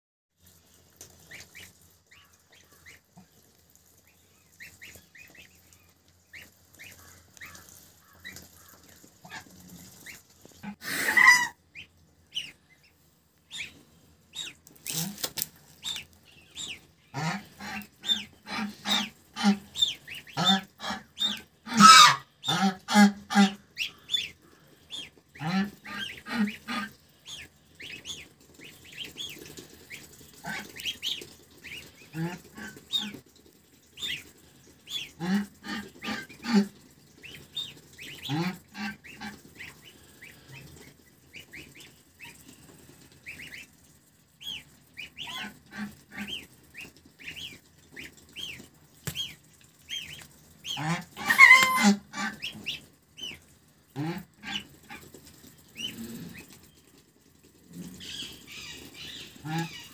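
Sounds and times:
goslings peeping: 0:01.0 - 0:57.0, 0:57.8 - 0:59.9
goose honking: 0:10.6 - 0:12.5, 0:17.1 - 0:24.2, 0:24.9 - 0:27.4, 0:34.9 - 0:36.8, 0:50.6 - 0:52.8.

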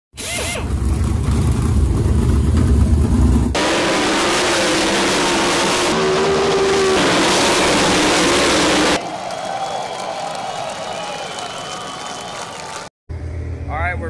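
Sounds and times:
deep rumble: 0:00.7 - 0:03.6
sprint car engines racing: 0:03.5 - 0:12.8.

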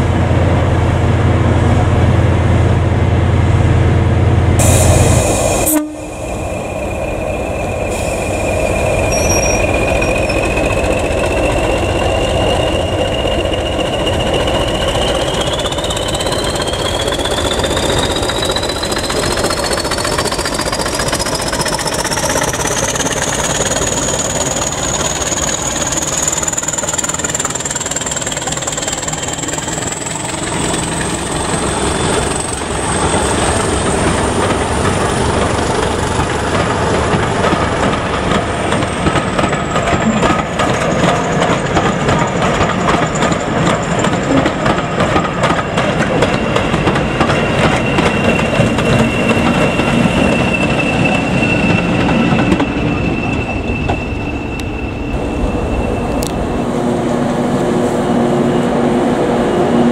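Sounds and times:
diesel locomotive engines: 0:00.0 - 0:59.9
turbocharger whistle: 0:04.6 - 0:20.0, 0:46.4 - 0:56.6.

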